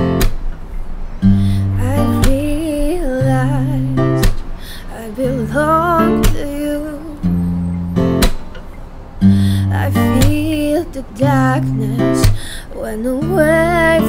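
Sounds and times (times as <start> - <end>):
acoustic guitar strumming: 0.0 - 14.0
woman singing: 1.5 - 7.5, 9.4 - 14.0.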